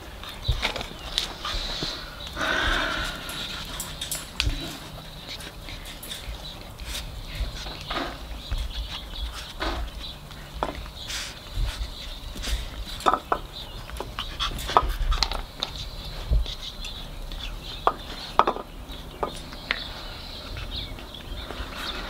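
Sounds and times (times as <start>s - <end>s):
bowl clinking on concrete: 2.8s - 5.1s.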